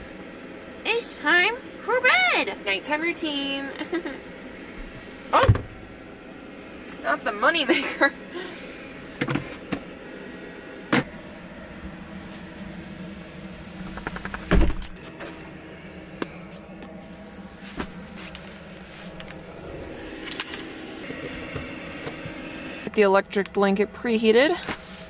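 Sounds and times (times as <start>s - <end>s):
steady low hum: 0.0s - 25.0s
cord handling clicks and knocks: 13.8s - 14.9s.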